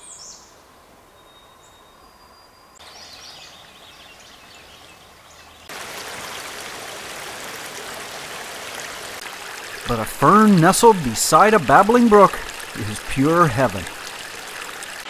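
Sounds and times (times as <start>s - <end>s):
forest ambience: 0.0s - 15.0s
brook flowing over rocks: 5.6s - 15.0s.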